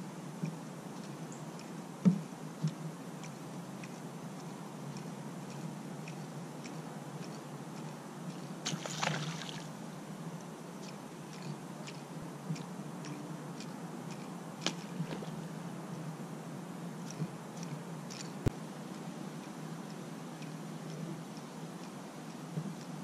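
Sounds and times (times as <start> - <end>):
water sloshing around kayak hull: 8.6 - 9.7
water splash: 8.6 - 9.7.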